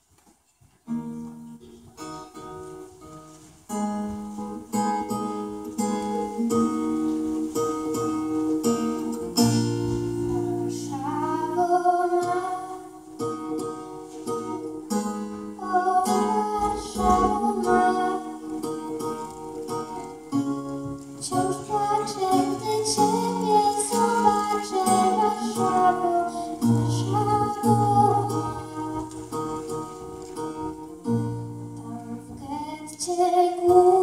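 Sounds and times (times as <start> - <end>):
acoustic guitar strumming chords: 0.9 - 34.0
girl singing: 8.9 - 13.6, 15.5 - 19.4, 21.2 - 29.8, 31.7 - 34.0.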